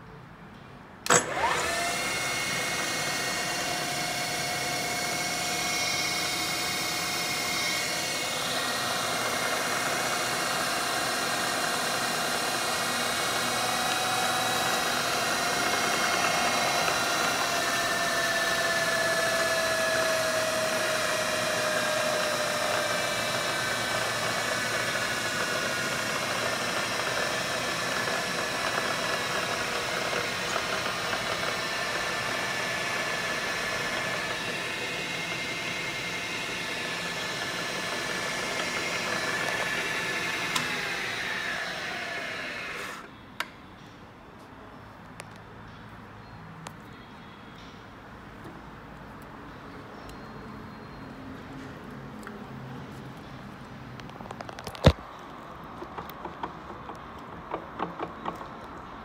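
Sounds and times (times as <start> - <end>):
mill spindle whining hum: 1.0 - 43.5.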